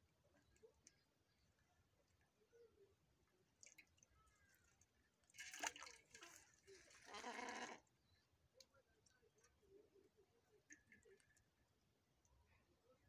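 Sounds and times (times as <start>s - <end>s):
water splashing and rustling: 3.5s - 7.8s.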